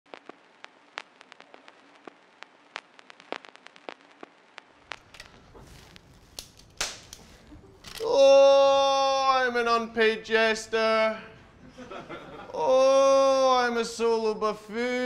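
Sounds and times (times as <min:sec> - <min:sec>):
faint irregular clicks and crackles: 0:00.1 - 0:08.2.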